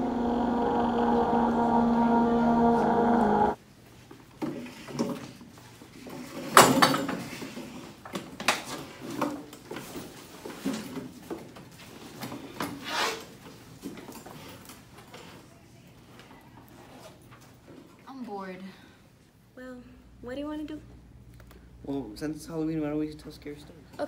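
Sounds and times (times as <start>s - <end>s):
steady droning tone: 0.0s - 3.6s.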